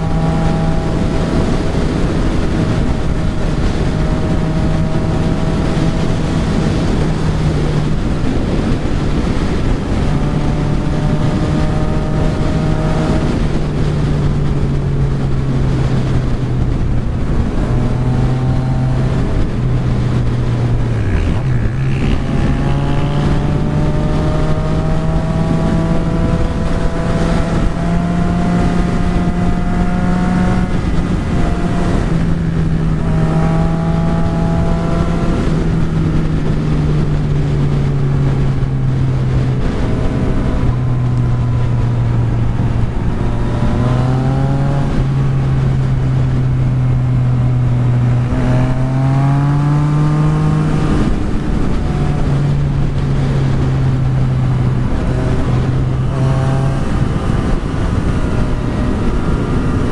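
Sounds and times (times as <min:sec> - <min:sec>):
motorcycle engine running: 0:00.0 - 0:59.9
wind rush on microphone: 0:00.0 - 0:59.9.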